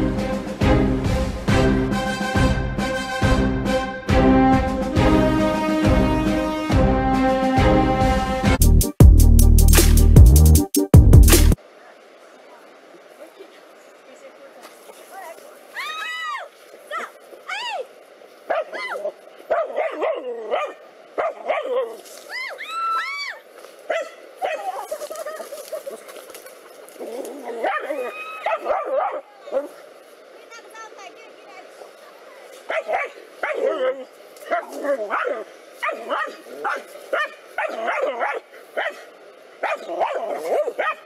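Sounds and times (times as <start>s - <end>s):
high arching yelps: 15.8s - 17.9s, 18.5s - 26.1s, 27.0s - 29.8s
dogs barking: 18.5s - 22.0s, 23.9s - 25.0s, 27.4s - 29.8s, 32.7s - 41.0s.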